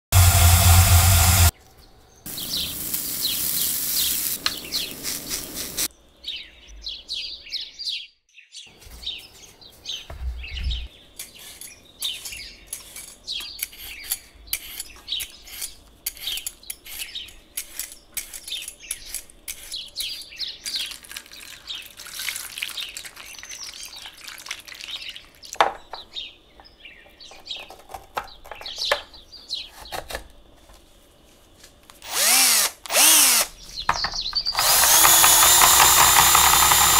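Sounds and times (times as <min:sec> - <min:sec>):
loud steady rasping noise: 0:00.0 - 0:01.5, 0:32.1 - 0:33.5, 0:34.5 - 0:36.9
peeler scraping potato: 0:11.2 - 0:20.2, 0:34.4 - 0:36.9.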